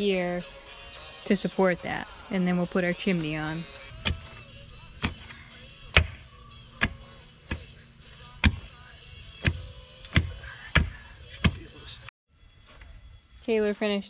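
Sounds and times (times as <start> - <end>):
pick mattock striking soil: 3.9 - 6.2, 6.8 - 7.7, 8.4 - 8.7, 9.4 - 11.6.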